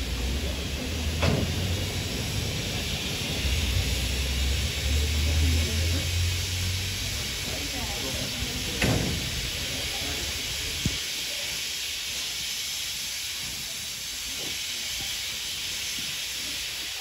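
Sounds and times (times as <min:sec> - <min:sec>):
steam hissing: 0:00.0 - 0:17.0
thump: 0:08.8 - 0:09.2.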